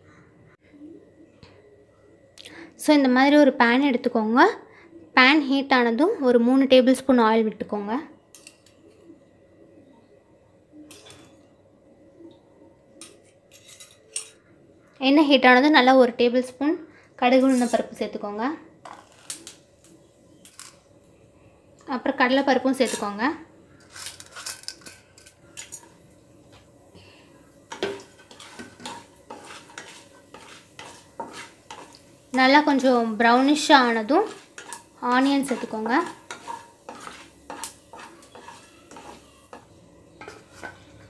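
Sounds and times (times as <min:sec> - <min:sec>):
seeds frying in oil: 0:21.9 - 0:41.0.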